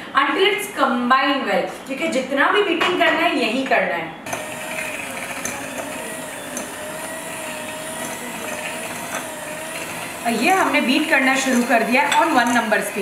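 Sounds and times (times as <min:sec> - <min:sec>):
electric hand mixer running: 0:04.3 - 0:13.0.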